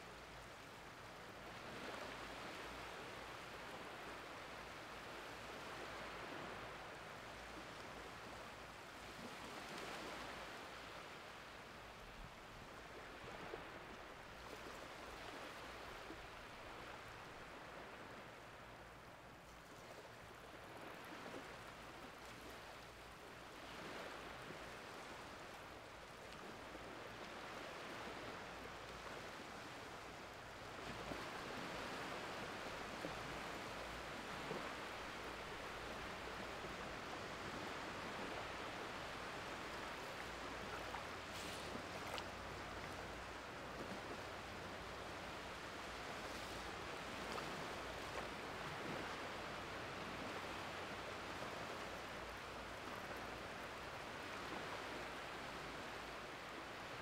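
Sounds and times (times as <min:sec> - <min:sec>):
water washing over sandy beach: 0:19.8 - 0:57.0.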